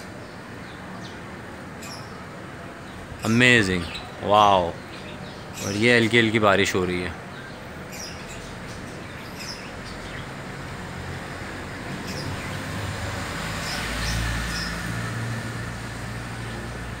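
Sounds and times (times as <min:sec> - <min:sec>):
bird chirps: 0:00.0 - 0:06.4, 0:07.0 - 0:10.4, 0:12.0 - 0:12.8, 0:13.5 - 0:15.0.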